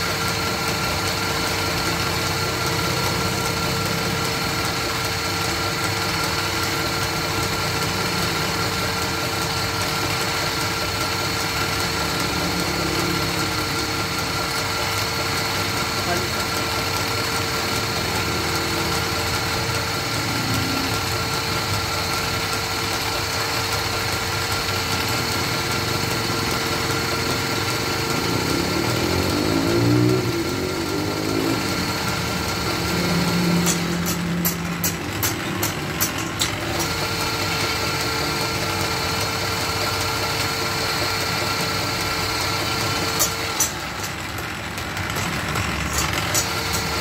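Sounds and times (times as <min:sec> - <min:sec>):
wood lathe humming: 0:00.0 - 0:47.0.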